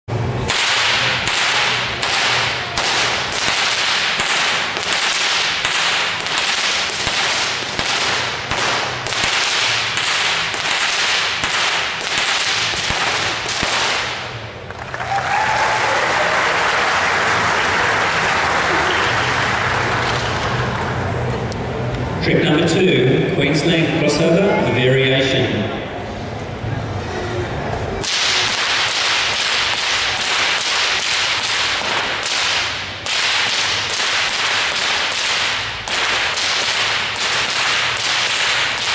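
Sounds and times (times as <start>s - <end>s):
whips cracking: 0.3s - 14.5s, 28.0s - 38.9s
applause: 14.7s - 21.0s.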